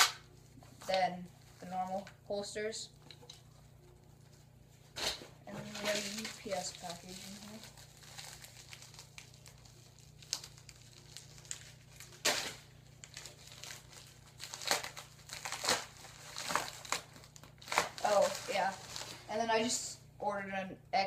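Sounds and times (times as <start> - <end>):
plastic envelope crinkling: 2.9 - 19.4.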